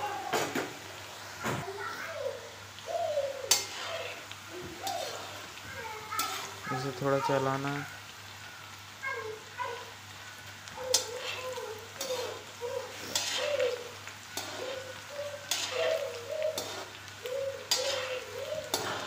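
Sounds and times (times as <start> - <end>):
chickpeas frying in hot oil: 0.0 - 19.0
bird calling: 1.9 - 6.9, 7.8 - 19.0
spatula scraping and knocking pan: 3.4 - 5.3, 10.8 - 19.0.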